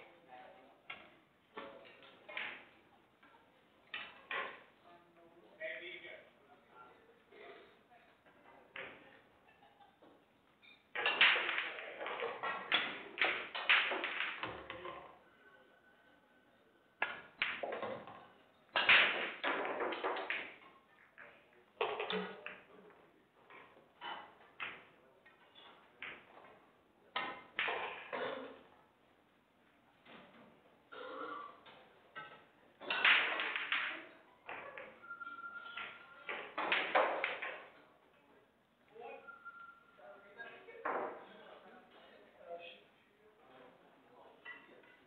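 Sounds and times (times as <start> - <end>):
pool balls clacking: 0.9 - 4.8, 8.3 - 15.2, 17.0 - 28.7, 31.6 - 38.0.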